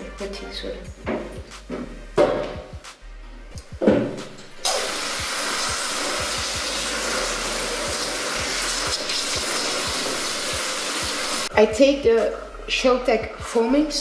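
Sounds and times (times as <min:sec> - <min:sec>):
brief thud: 0:03.8 - 0:04.4
shower spray hissing: 0:04.6 - 0:11.5.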